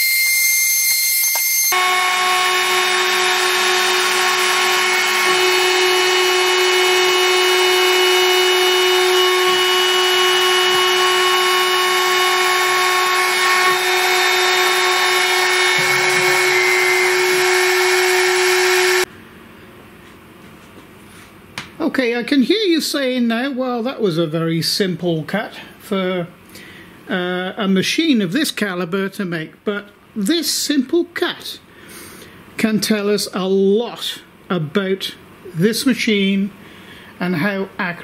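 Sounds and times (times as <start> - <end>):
router spindle whine cutting: 0.0 - 19.1.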